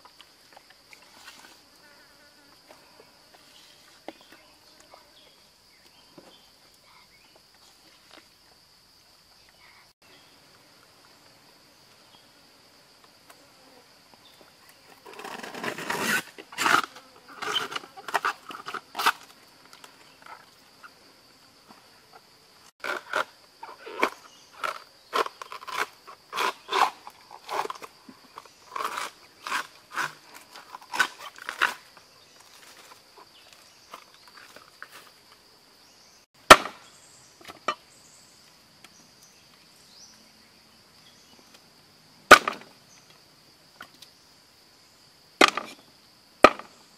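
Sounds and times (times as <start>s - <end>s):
high insect drone: 0.0s - 46.9s
banana trunk layers tearing: 15.1s - 19.3s, 22.8s - 32.0s.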